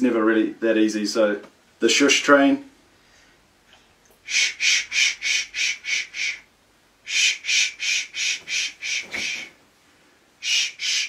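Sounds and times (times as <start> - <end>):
man shushing rhythmically: 4.2 - 9.6, 10.4 - 11.0.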